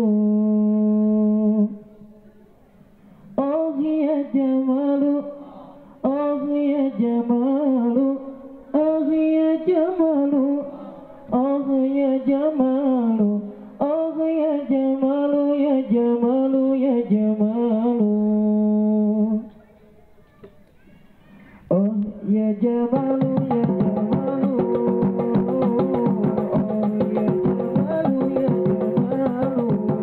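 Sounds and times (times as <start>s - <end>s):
young person singing: 21.7s - 30.0s.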